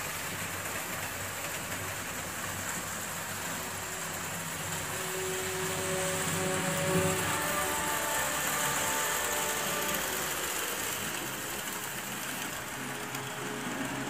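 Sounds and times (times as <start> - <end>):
metal wheels rolling on track: 0.0 - 14.0
model train motors whirring: 0.0 - 14.0.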